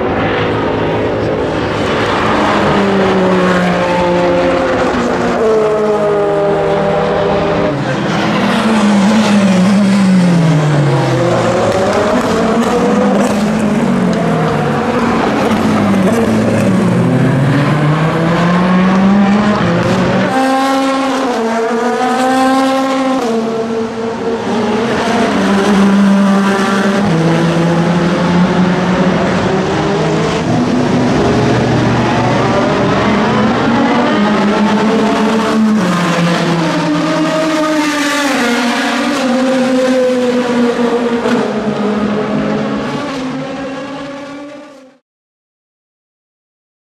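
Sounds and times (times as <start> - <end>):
race car engine shifting gears: 7.4 - 44.6.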